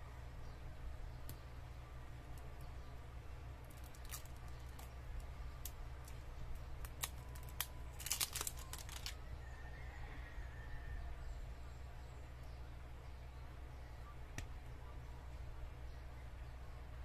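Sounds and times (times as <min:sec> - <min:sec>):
low hum: 0:00.0 - 0:17.0
plastic wrapping crinkling: 0:03.7 - 0:04.9, 0:06.8 - 0:09.2.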